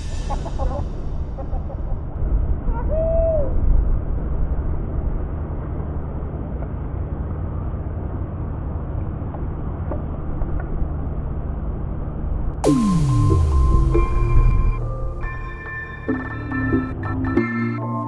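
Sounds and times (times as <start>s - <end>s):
low rumble: 0.0s - 17.0s
low hum: 0.0s - 17.4s.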